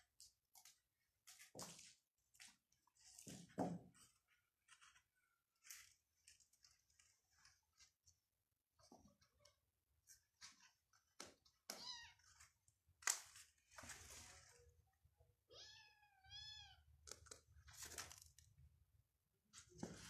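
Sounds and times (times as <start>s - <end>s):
litter scratching and shuffling: 8.8s - 14.8s, 17.6s - 18.4s.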